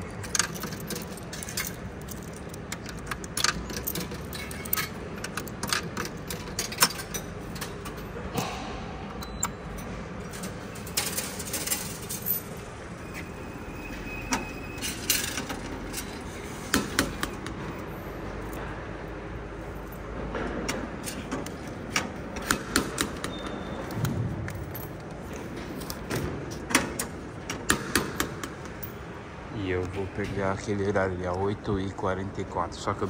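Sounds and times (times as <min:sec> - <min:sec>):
coins clinking into vending machine: 0:00.0 - 0:08.2, 0:09.2 - 0:12.7, 0:14.4 - 0:16.3.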